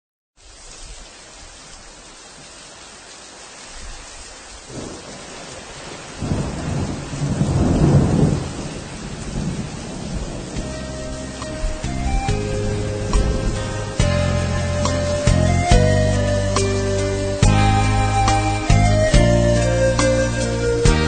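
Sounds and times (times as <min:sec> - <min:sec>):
steady rain: 0:00.4 - 0:21.0
thunder rolling: 0:04.7 - 0:21.0
music: 0:10.5 - 0:21.0.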